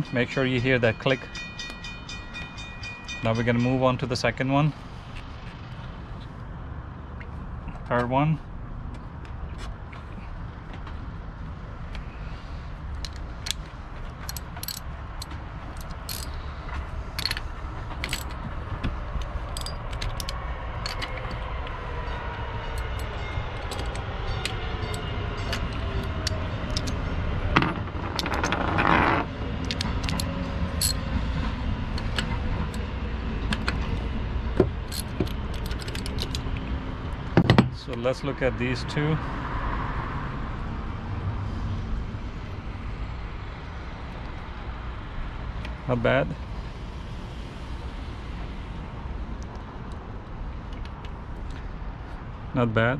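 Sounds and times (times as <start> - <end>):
metal tools clinking: 14.2 - 16.4, 17.2 - 18.6, 19.2 - 21.4, 22.7 - 27.0, 29.7 - 31.0, 34.9 - 36.4
ratchet wrench clicking: 14.2 - 16.4, 19.5 - 21.2, 34.9 - 36.4.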